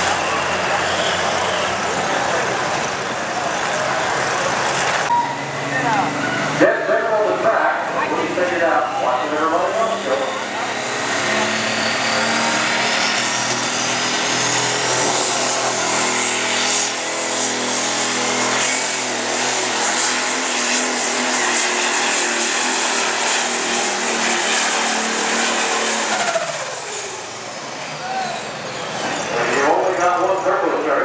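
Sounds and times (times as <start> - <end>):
diesel engine running flat out: 0.0 - 31.0
turbo whistle: 5.1 - 6.5.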